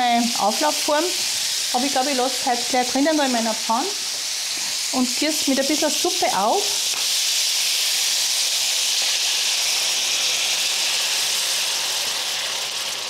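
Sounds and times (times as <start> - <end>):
broth sizzling in hot oil: 0.0 - 13.0.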